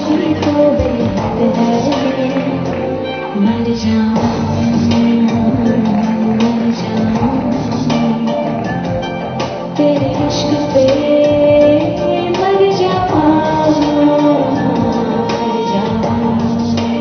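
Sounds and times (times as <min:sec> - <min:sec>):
woman singing: 0:00.0 - 0:17.0.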